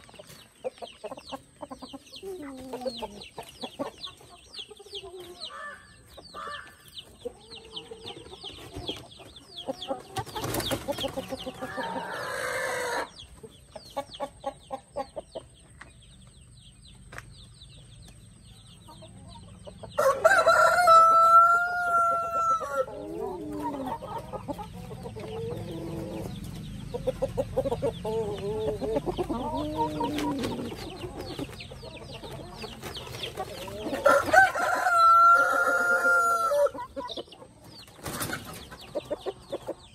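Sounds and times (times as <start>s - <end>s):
hens clucking: 0.0s - 39.9s
rooster crowing: 20.0s - 23.0s, 34.0s - 36.8s.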